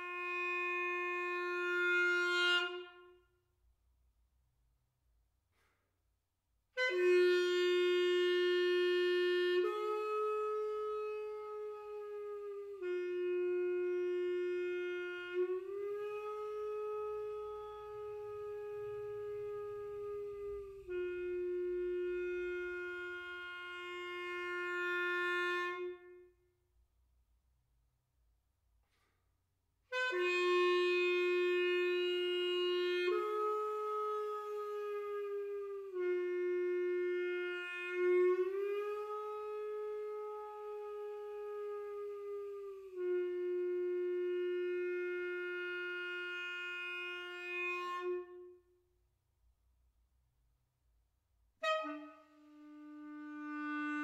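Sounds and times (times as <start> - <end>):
clarinet holding a long note: 0.0 - 3.3, 6.8 - 26.4, 29.9 - 48.8, 51.6 - 54.0.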